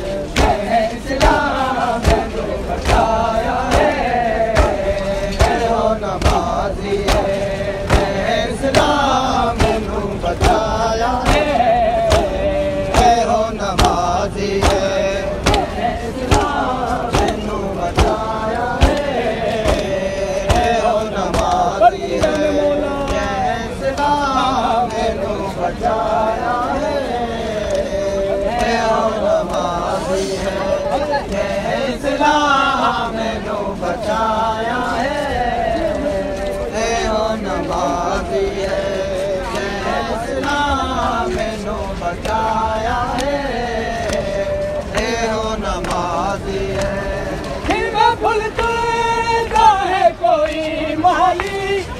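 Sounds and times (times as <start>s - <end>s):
crowd beating their chests: 0.0s - 51.9s
man chanting a lament: 0.0s - 51.9s.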